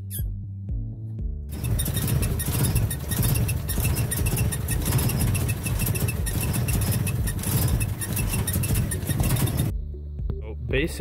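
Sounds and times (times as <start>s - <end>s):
engine idling: 1.5s - 9.7s
rapid squeak and rattle: 1.5s - 9.7s.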